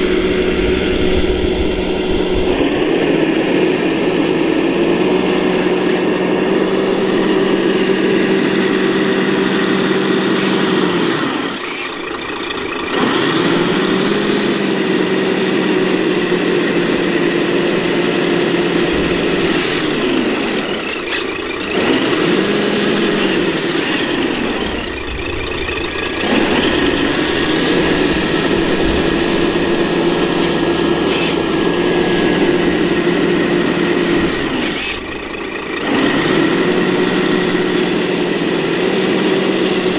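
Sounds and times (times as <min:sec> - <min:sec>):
toy truck motor whining: 0:03.4 - 0:25.5, 0:26.3 - 0:39.9.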